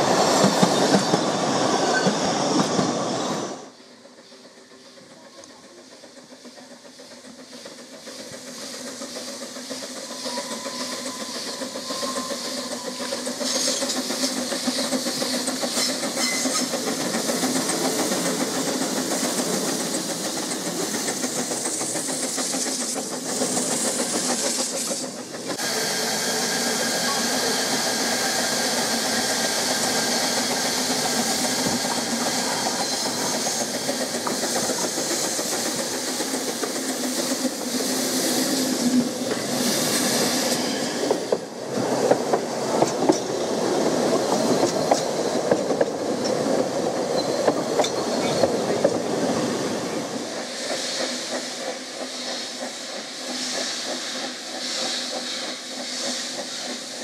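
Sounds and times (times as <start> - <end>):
steam hissing from locomotive: 0.0 - 57.0
steam locomotive approaching: 0.0 - 57.0
coaches clattering over rail joints: 40.4 - 49.3.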